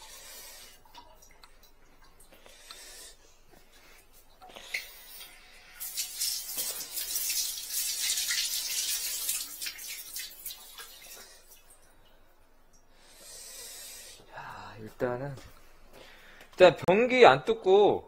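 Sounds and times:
water rushing from tap: 0:05.8 - 0:11.7.

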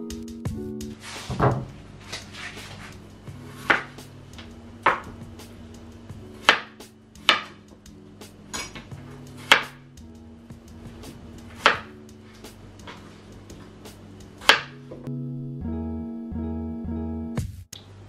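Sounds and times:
soft background music: 0:00.0 - 0:17.7
knife chopping on cutting board: 0:03.5 - 0:04.0, 0:04.8 - 0:05.1, 0:06.4 - 0:07.6, 0:09.4 - 0:09.8, 0:11.5 - 0:11.9, 0:14.4 - 0:14.8.

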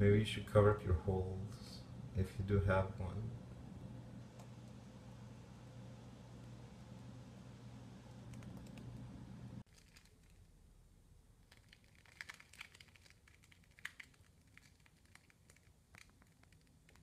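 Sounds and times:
steady low hum: 0:00.0 - 0:09.7
plastic tape crinkling: 0:09.6 - 0:10.6, 0:11.4 - 0:17.0.

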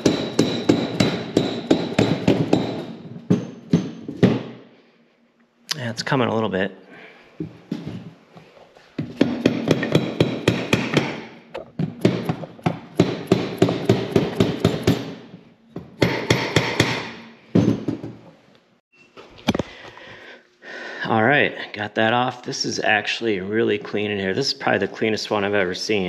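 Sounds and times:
hammer tapping on metal engine case: 0:09.2 - 0:11.2.

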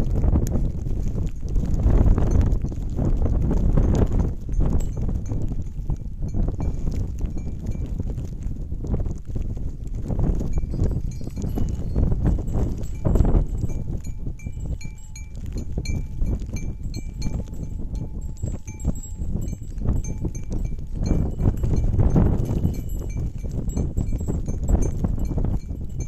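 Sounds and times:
constant low rumble: 0:00.0 - 0:26.0
small bells clinking: 0:03.8 - 0:07.9, 0:10.5 - 0:26.0.

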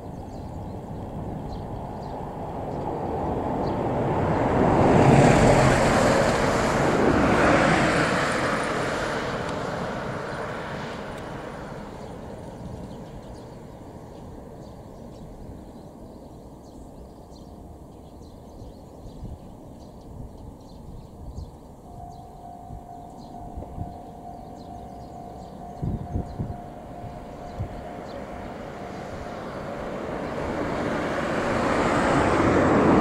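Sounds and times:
vehicle passing by: 0:01.4 - 0:13.9, 0:22.0 - 0:33.0.

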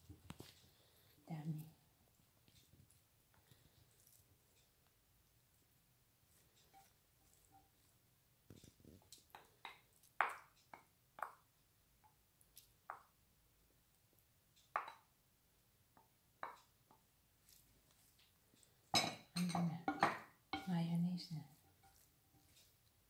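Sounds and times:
wooden spoon knocking on glass bowl: 0:14.7 - 0:15.1, 0:19.0 - 0:20.7.

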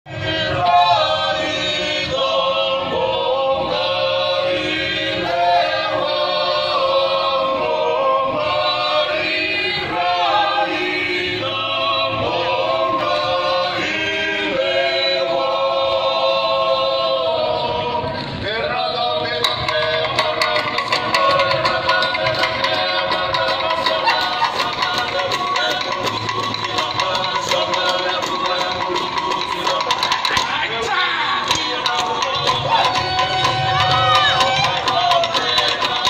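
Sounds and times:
group singing in harmony: 0:00.0 - 0:36.0.

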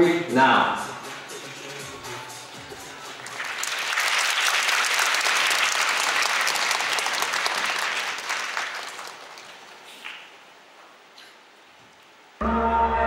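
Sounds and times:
audience applauding: 0:01.1 - 0:10.4.

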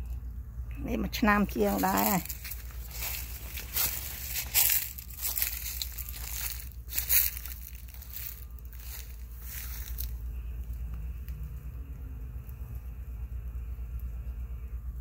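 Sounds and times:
low steady rumble: 0:00.0 - 0:15.0
footsteps crunching dry leaves: 0:01.2 - 0:11.0.

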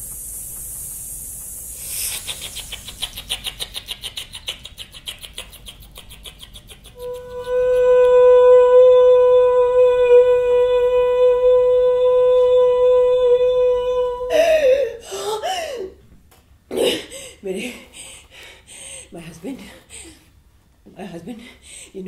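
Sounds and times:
wavering vocal sounds: 0:01.9 - 0:15.5
woman singing a long note: 0:07.0 - 0:14.8.

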